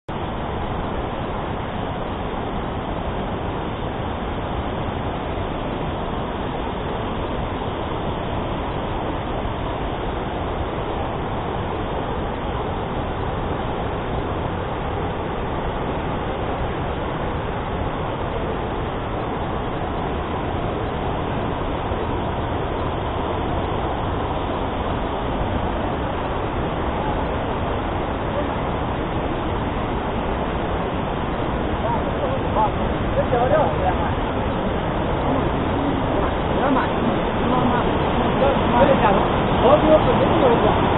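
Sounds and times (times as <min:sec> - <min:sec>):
waterfall roaring: 0:00.1 - 0:40.9.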